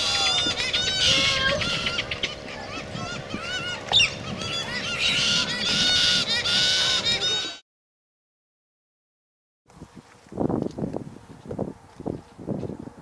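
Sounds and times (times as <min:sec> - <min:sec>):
birds chattering calls: 0:00.0 - 0:07.6.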